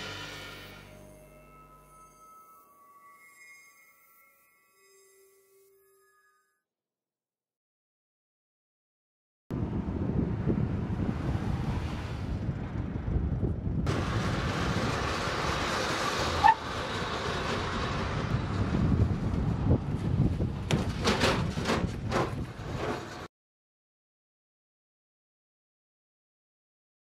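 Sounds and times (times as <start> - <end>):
wind noise on microphone: 9.5 - 16.6, 17.7 - 23.1
car engine rumble: 9.6 - 22.8.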